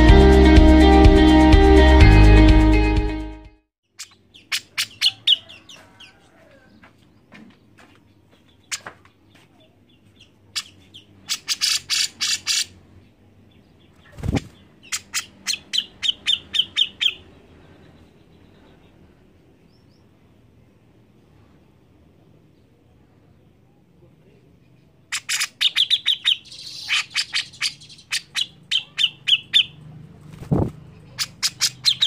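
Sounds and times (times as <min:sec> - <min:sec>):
bird calling sharp notes: 0:25.1 - 0:29.8, 0:31.1 - 0:32.0.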